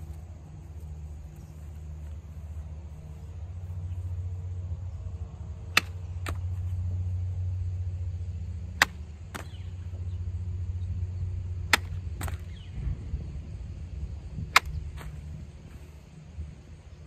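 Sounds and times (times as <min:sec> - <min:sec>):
sword cutting sharp cracks: 0:05.7 - 0:06.4, 0:08.7 - 0:09.6, 0:11.7 - 0:12.5, 0:14.5 - 0:15.2.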